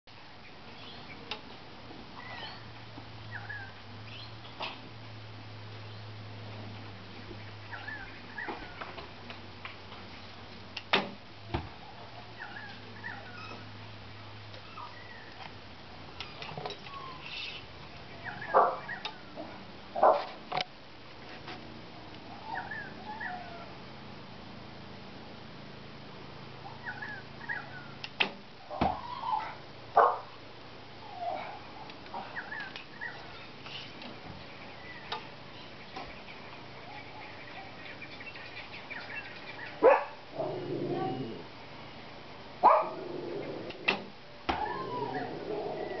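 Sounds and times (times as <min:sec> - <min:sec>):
dog barking: 0:18.4 - 0:19.0, 0:20.0 - 0:20.3, 0:30.0 - 0:30.3, 0:39.8 - 0:40.2, 0:42.6 - 0:43.0
animal calling: 0:22.3 - 0:23.7, 0:39.0 - 0:41.5, 0:42.6 - 0:46.0.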